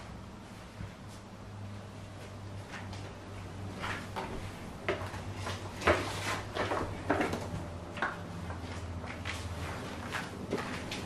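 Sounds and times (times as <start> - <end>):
footsteps on hard floor: 8.5 - 11.0.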